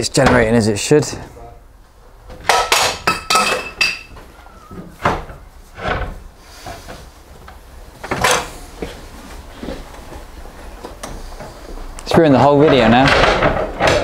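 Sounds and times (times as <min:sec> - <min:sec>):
knocks and clatters: 0:10.8 - 0:14.0.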